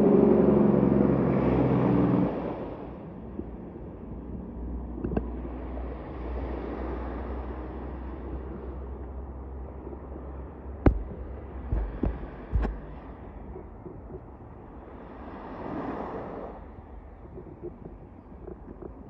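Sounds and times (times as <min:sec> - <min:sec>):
wind rumbling on microphone: 0:00.0 - 0:19.0
sea wash: 0:01.4 - 0:19.0
sharp knock: 0:10.9 - 0:12.9.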